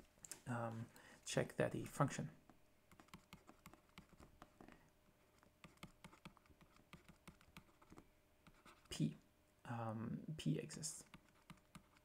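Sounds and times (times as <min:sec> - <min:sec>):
stylus tapping on screen: 0:02.9 - 0:04.6, 0:05.6 - 0:08.7.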